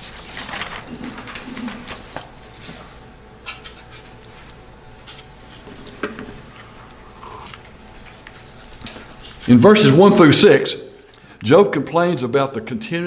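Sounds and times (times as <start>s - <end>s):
paper rustling: 0.0s - 2.9s.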